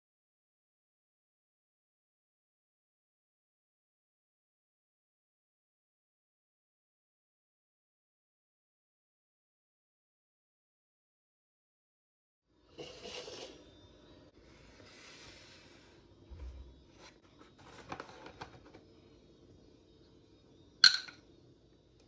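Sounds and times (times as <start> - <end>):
soft scrapes on counter: 12.8 - 13.6, 14.4 - 16.0.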